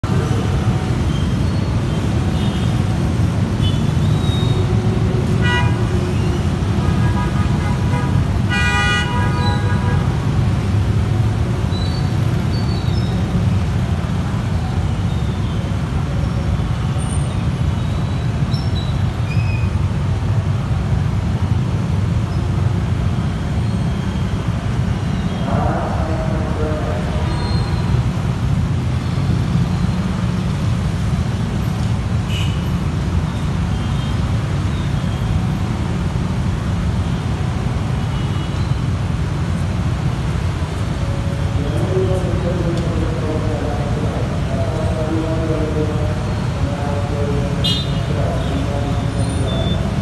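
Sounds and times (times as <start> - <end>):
traffic engine rumble: 0.0 - 50.0
vehicle horn: 5.4 - 5.8, 6.9 - 10.2, 47.6 - 48.0.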